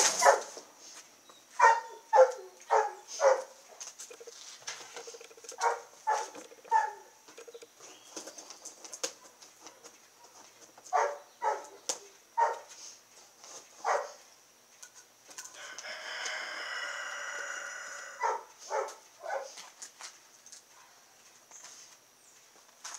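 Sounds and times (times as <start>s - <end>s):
chickens squawking and clucking: 4.1s - 7.6s, 15.6s - 18.6s
rooster crowing: 15.5s - 18.5s.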